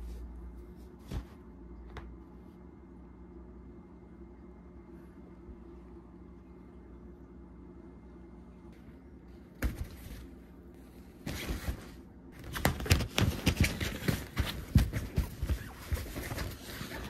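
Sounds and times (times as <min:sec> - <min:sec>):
fabric tunnel rustling and crinkling: 0:11.0 - 0:17.0.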